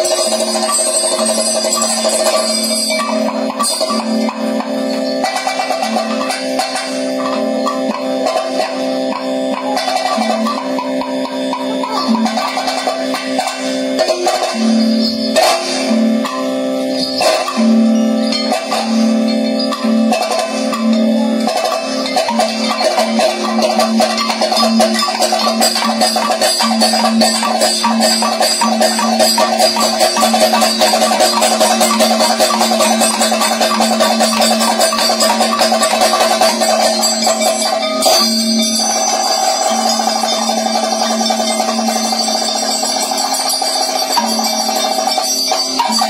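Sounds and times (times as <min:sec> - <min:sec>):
drum beaten with sticks: 0:00.0 - 0:46.0
steady ringing tones: 0:00.0 - 0:46.0.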